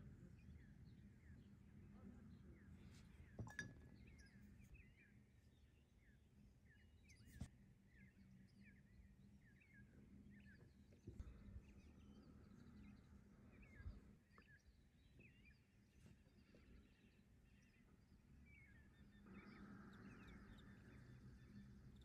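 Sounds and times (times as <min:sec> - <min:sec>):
small birds chirping: 0:00.0 - 0:22.0
steady low hum: 0:15.4 - 0:22.0.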